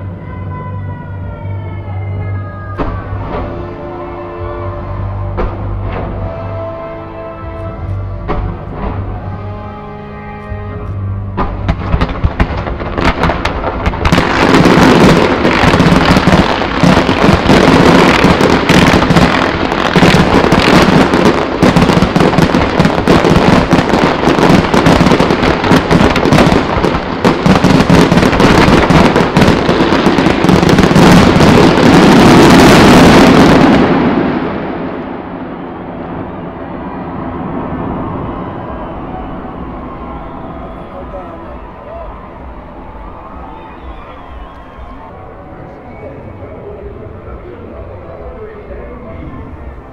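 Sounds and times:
fireworks bursting and crackling: 11.4 - 48.6.

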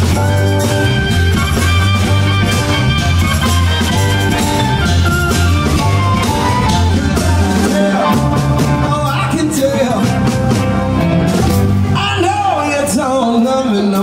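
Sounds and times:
harmonica bending notes: 0.0 - 9.2
electric guitar: 0.0 - 14.0
keyboard: 0.0 - 14.0
steady bass line: 0.0 - 14.0.

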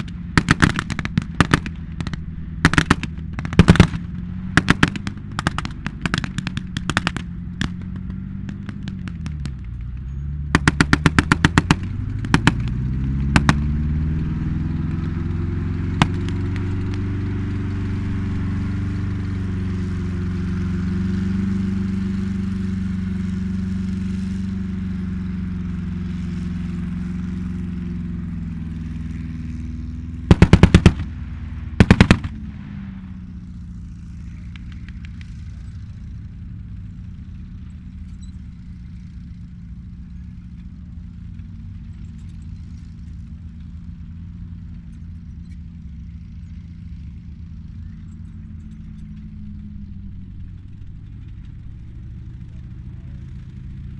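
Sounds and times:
machine-gun fire bursts: 0.0 - 4.0, 4.6 - 7.8, 10.6 - 12.7, 13.4 - 13.8, 30.3 - 31.1, 31.8 - 32.4
tank engine running: 0.0 - 53.9.

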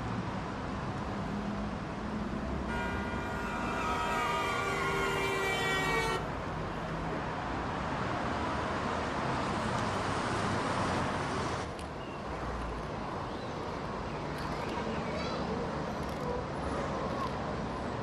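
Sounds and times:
road traffic: 0.0 - 18.0
held horn tone: 2.7 - 6.3.

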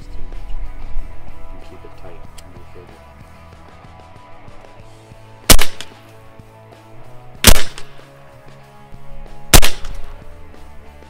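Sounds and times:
air rifle shots: 5.5 - 6.1, 7.4 - 8.1, 9.5 - 10.2.

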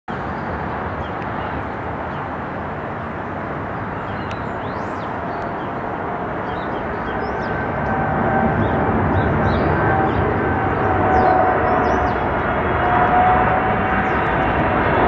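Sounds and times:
jetliner engine rumble: 0.1 - 15.0
steady whining tones: 4.3 - 15.0.

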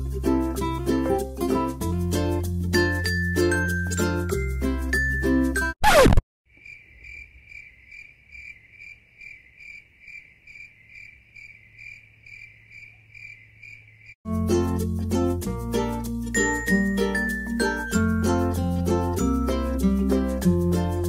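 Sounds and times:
background music: 0.0 - 5.8, 14.3 - 21.0
crickets chirping: 6.5 - 14.2.

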